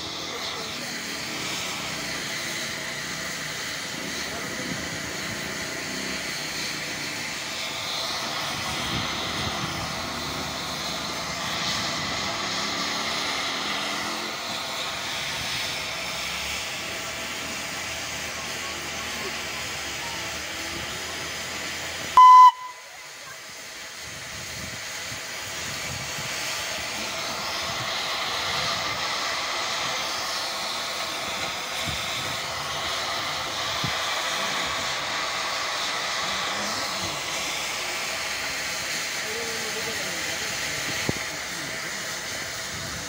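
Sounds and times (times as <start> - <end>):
steam hissing: 0.0 - 43.0
steam locomotive whistle blast: 22.2 - 23.1.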